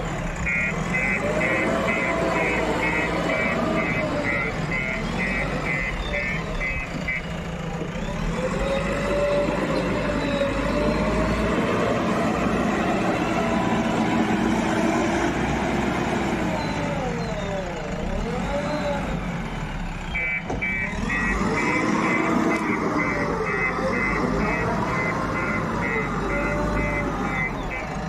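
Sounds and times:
diesel engine under load: 0:00.0 - 0:28.0
reversing alarm beeps: 0:00.4 - 0:07.3, 0:20.1 - 0:28.0.

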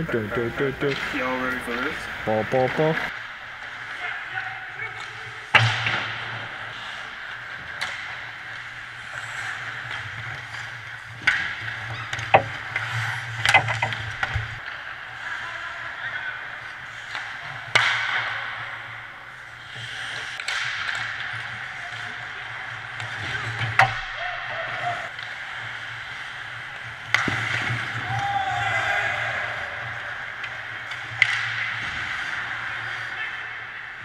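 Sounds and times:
hockey sticks and puck clacking: 0:00.0 - 0:34.0
skate blades scraping ice: 0:00.0 - 0:34.0.

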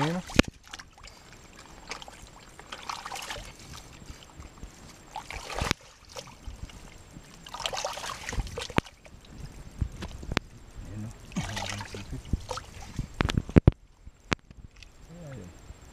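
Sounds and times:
bare feet splashing through mud: 0:00.0 - 0:09.0, 0:11.3 - 0:13.1.

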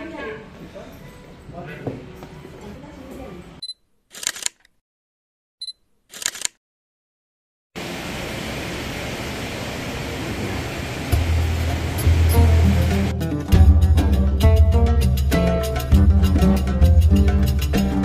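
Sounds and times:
camera focus beep: 0:03.6 - 0:04.6, 0:05.6 - 0:06.6
camera shutter click: 0:04.1 - 0:04.7, 0:06.1 - 0:06.6
music: 0:11.2 - 0:18.0.

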